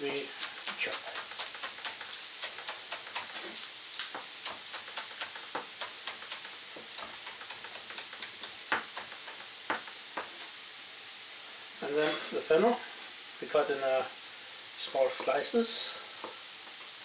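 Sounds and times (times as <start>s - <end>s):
vegetables sizzling in oil: 0.0s - 17.0s
knife chopping on cutting board: 4.2s - 10.4s.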